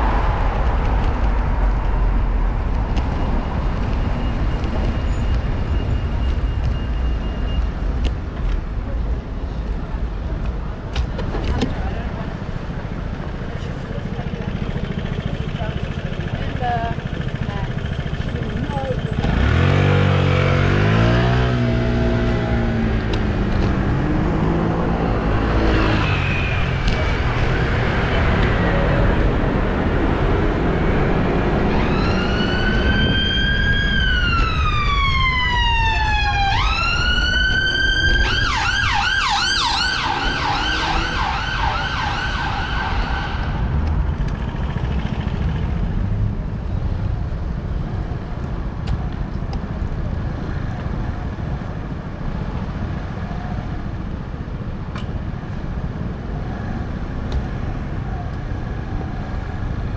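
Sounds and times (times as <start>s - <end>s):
road traffic noise: 0.0s - 59.9s
emergency vehicle siren: 30.6s - 43.8s.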